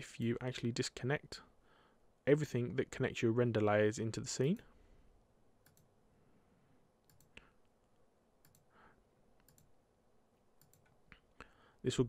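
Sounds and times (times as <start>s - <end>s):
computer mouse clicking: 5.6s - 5.9s, 7.0s - 7.5s, 8.4s - 8.7s, 9.4s - 9.8s, 10.6s - 11.0s.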